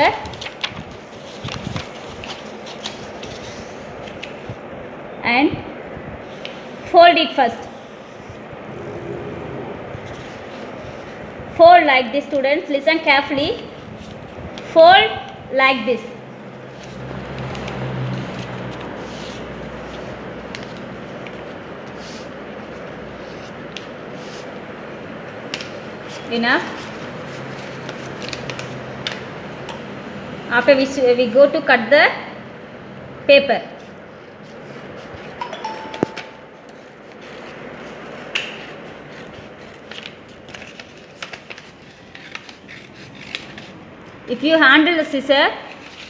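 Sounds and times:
paper rustling: 0.2 - 4.5, 36.6 - 43.8, 45.7 - 46.0
paper being folded: 0.2 - 4.6, 25.5 - 29.2, 36.6 - 43.8, 45.6 - 46.0
scissors snipping paper: 38.2 - 43.8.

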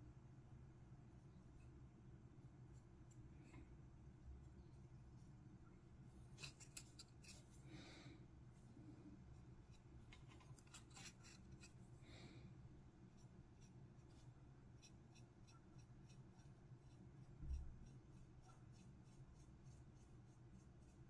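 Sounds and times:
faint low hum: 0.0 - 21.0
paintbrush scratching plastic: 6.3 - 7.6, 9.3 - 11.8, 13.1 - 21.0.

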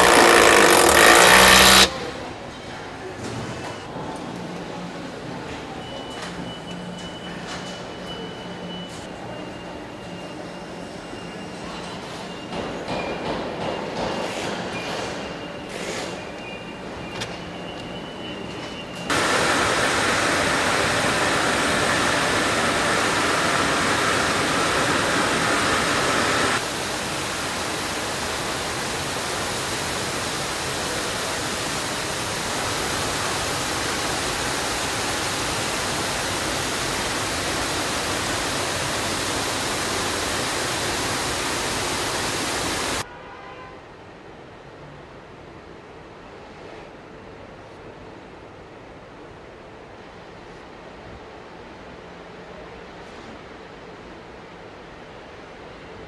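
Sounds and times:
water spray jets hissing: 19.1 - 43.0.

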